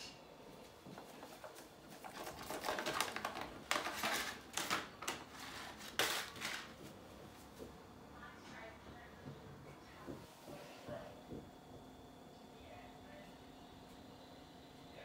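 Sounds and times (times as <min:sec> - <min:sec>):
plastic packets crinkling: 0:01.1 - 0:06.8.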